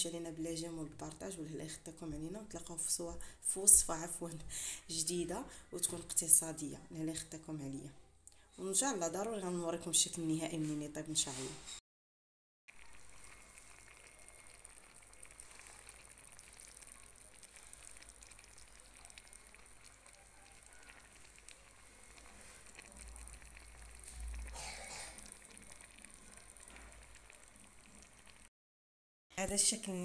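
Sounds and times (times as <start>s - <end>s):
stew sizzling and crackling: 12.7s - 28.5s.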